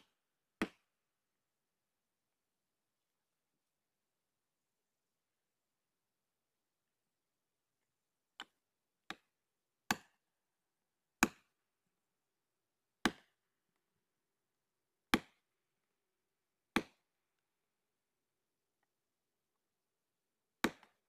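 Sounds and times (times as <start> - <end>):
axe chopping tree: 0.0 - 0.9, 9.9 - 10.2, 11.2 - 11.5, 13.0 - 13.4, 15.1 - 15.4, 16.8 - 17.0, 20.6 - 21.0.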